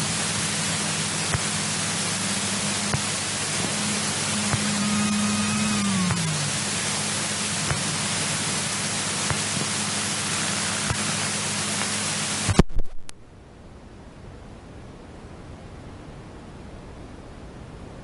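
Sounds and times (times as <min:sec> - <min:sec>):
aircraft engine cabin hum: 0:00.0 - 0:12.7
faint hiss: 0:00.0 - 0:18.0.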